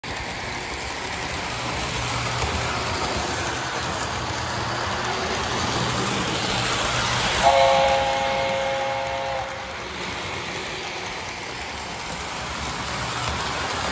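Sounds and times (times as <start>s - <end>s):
toy train rumbling on track: 0.0s - 13.9s
electronic train horn chord: 7.4s - 9.8s.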